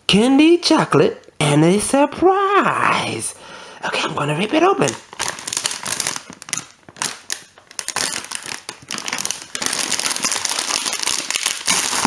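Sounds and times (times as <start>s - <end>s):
plastic bag crinkling: 4.2s - 12.0s
plastic tearing: 4.8s - 12.0s.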